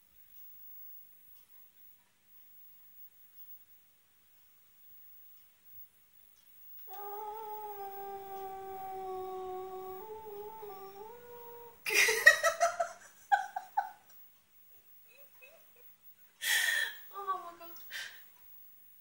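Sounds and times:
cat wailing and yowling: 0:06.9 - 0:11.9.

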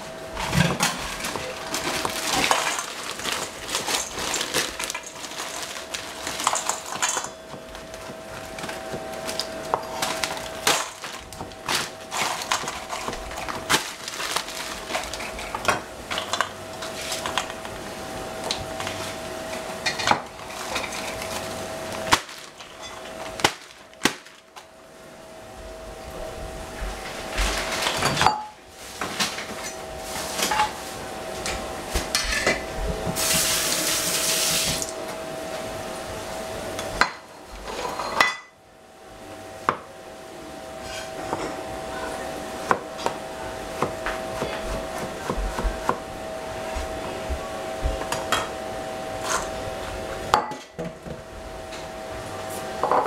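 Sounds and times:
utensils and pots clinking: 0:00.0 - 0:17.8, 0:18.4 - 0:24.5, 0:27.4 - 0:35.0, 0:36.7 - 0:38.6, 0:40.7 - 0:41.9, 0:48.0 - 0:53.0
steady hum: 0:00.0 - 0:53.0.

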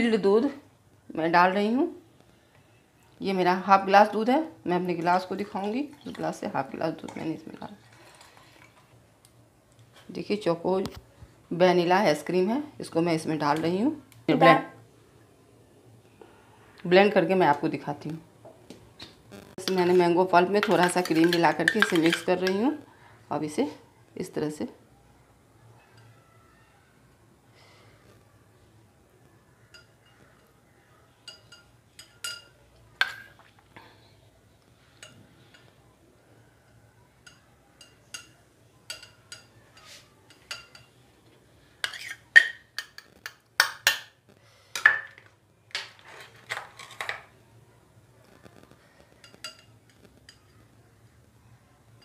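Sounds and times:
metal spoon clinking on glass: 0:29.7 - 0:30.5, 0:31.2 - 0:33.3, 0:36.7 - 0:41.0, 0:49.2 - 0:50.4.

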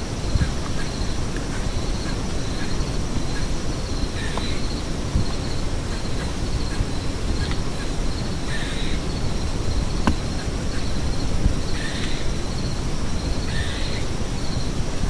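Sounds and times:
pulsing insect trill: 0:00.1 - 0:14.8
crow cawing: 0:08.5 - 0:09.0.

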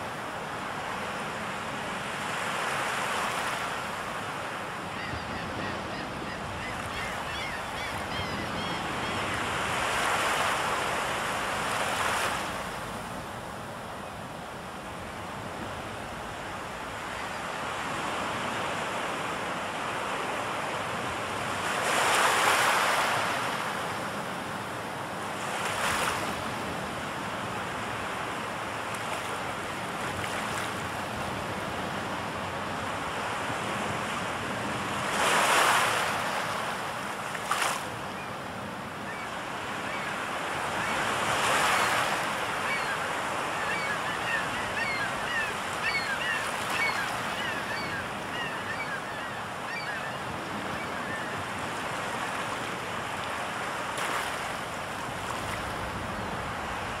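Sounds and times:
sea surf washing on shore: 0:07.3 - 0:57.0
high bird calls: 0:42.6 - 0:50.2.

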